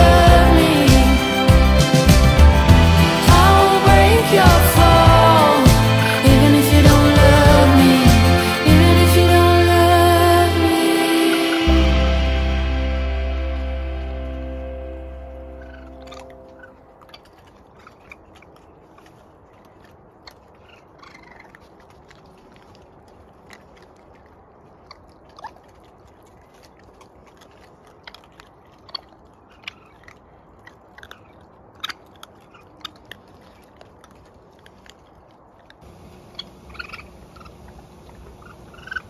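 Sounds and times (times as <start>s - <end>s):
faint raccoon squeaks: 20.3s - 21.7s, 28.9s - 33.1s, 36.3s - 37.6s, 38.2s - 39.0s.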